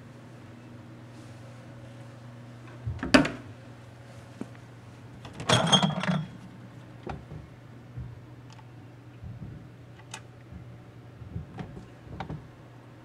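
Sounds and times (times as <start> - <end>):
steady low hum: 0.0 - 13.0
glass bottles clinking: 5.4 - 6.4
fridge door opening: 9.2 - 12.5.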